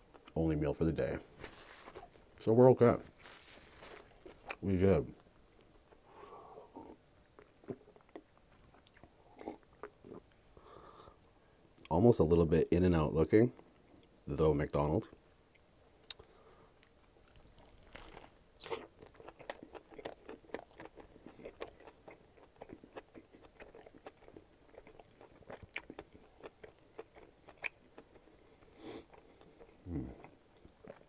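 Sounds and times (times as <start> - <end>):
close-miked chewing with mouth clicks: 16.0 - 31.0
biting into a burger: 16.8 - 31.0.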